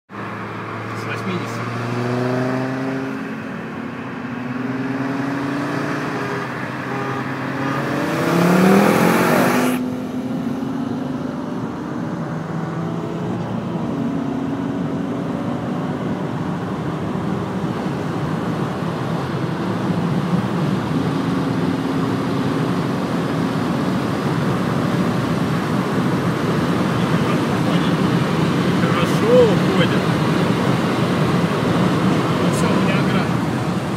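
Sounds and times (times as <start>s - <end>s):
car engines accelerating hard: 0.1s - 33.9s
wind and road noise: 0.1s - 33.9s.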